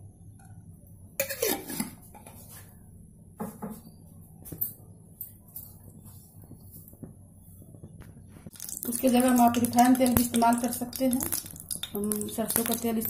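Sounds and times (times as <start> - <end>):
kitchenware clinking: 1.2 - 2.3.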